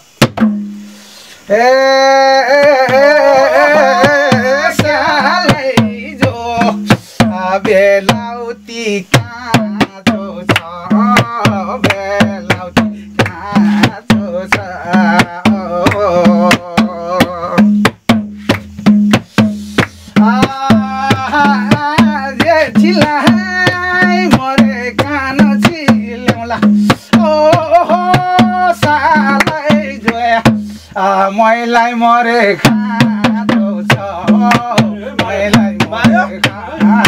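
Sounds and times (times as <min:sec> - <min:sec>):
hand drum beating: 0:00.0 - 0:00.8, 0:02.5 - 0:37.0
man singing folk song: 0:01.4 - 0:37.0
hand claps: 0:10.5 - 0:10.8, 0:13.2 - 0:14.7, 0:15.9 - 0:16.6, 0:17.8 - 0:20.0, 0:29.3 - 0:30.2.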